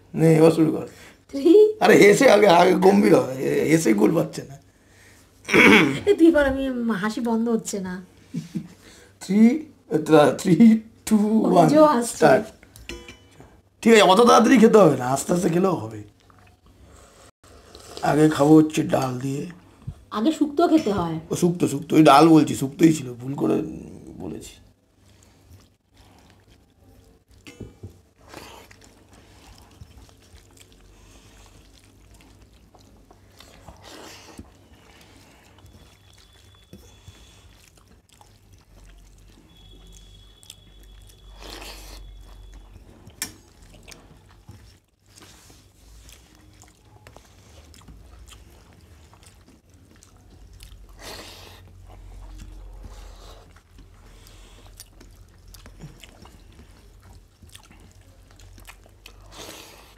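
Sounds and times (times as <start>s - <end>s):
chewing: 15.4s - 16.9s, 22.5s - 59.9s
fingers mixing rice: 28.2s - 59.3s.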